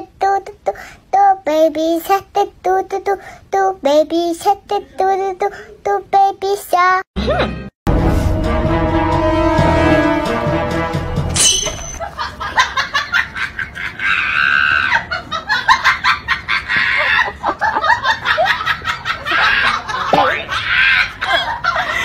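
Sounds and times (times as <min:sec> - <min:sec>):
person laughing hard with shrieks: 0:13.2 - 0:22.0.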